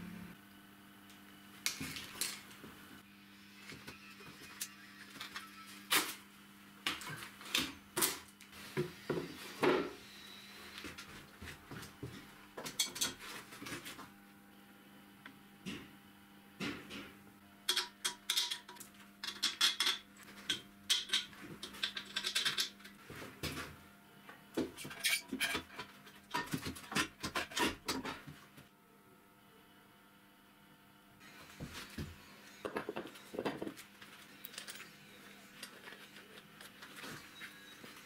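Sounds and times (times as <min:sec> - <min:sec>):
steel parts and tools clanking: 0:12.7 - 0:13.2, 0:24.8 - 0:26.5.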